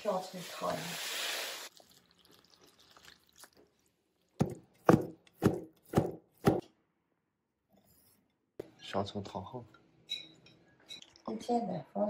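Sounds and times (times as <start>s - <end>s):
knife chopping on wooden board: 4.4s - 6.6s.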